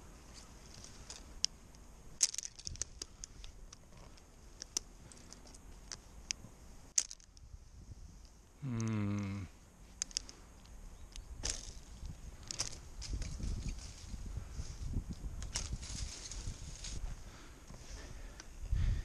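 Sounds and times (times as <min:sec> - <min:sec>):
climbing hardware clicking and clinking: 0:10.0 - 0:14.0.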